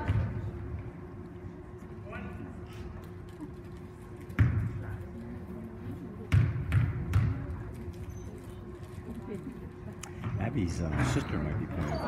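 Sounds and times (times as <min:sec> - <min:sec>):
basketball bouncing on hardwood floor: 0:04.4 - 0:04.7, 0:06.3 - 0:07.5.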